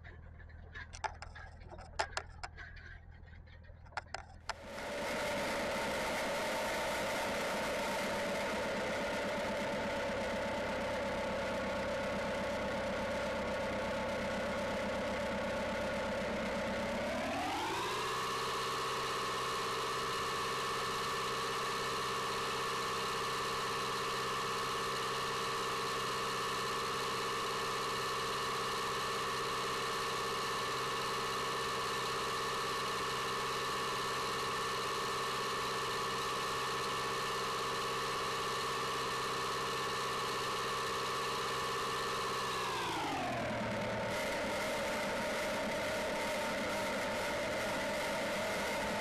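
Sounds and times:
tractor engine running: 0.0 - 5.3.

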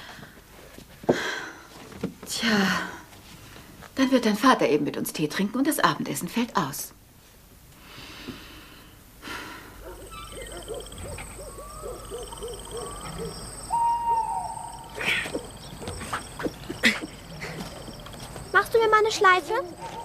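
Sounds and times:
owl hooting: 9.8 - 18.4
insect chirring: 9.8 - 20.0.

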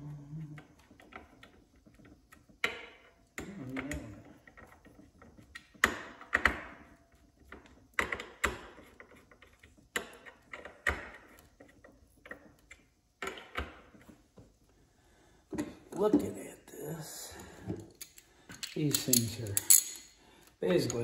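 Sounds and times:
metal gear clinking: 18.0 - 21.0.

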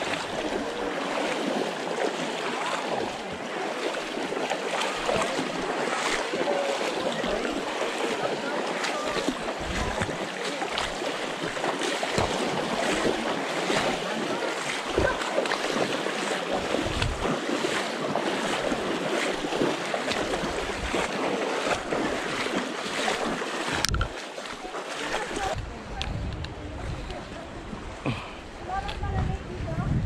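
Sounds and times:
river water rushing and splashing: 0.0 - 29.6
wind buffeting microphone: 9.3 - 10.2, 16.5 - 17.4, 25.4 - 30.0.

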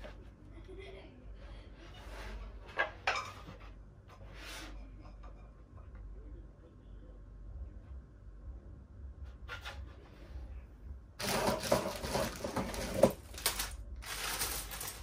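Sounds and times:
plastic bag crinkling: 11.2 - 15.0.

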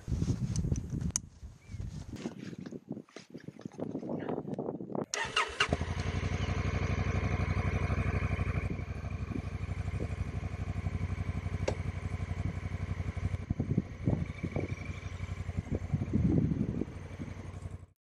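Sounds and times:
motorcycle engine idling: 5.2 - 17.9.

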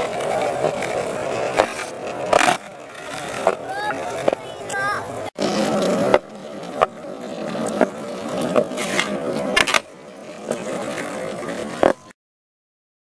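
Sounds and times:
skateboard clacks: 0.0 - 12.1
skateboard wheels rolling on asphalt: 0.0 - 12.1.

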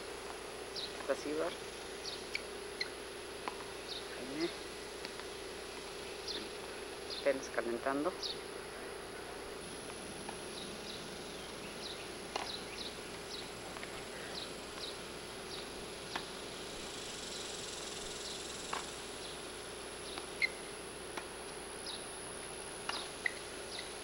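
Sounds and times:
constant high whine: 0.0 - 24.0
chirping: 0.7 - 3.0, 3.8 - 4.6, 6.0 - 7.4, 10.5 - 19.4, 20.0 - 20.7, 21.8 - 22.2, 22.9 - 24.0.

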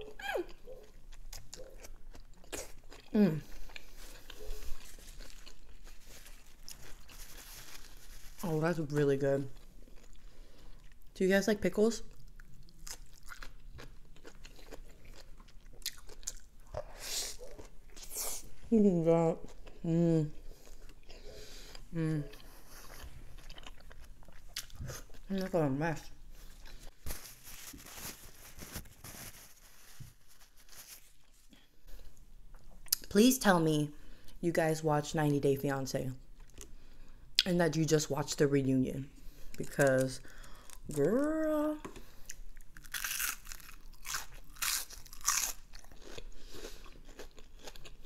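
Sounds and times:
soft chewing: 0.0 - 11.2, 12.0 - 28.9, 36.3 - 37.5, 39.2 - 48.0
paper napkin rustling: 5.8 - 8.5, 26.4 - 31.5
crunchy bites of onion ring: 42.3 - 48.0.

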